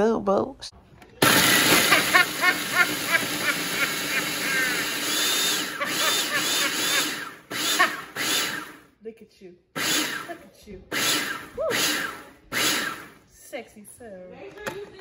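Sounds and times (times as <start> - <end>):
food processor grinding: 1.2 - 8.9, 9.8 - 13.2.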